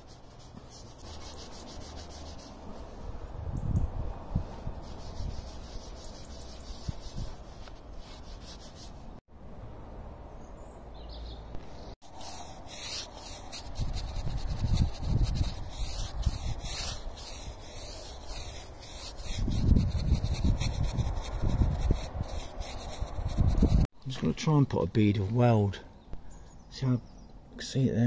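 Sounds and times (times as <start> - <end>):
rag wiping over steel plate: 12.2 - 23.8.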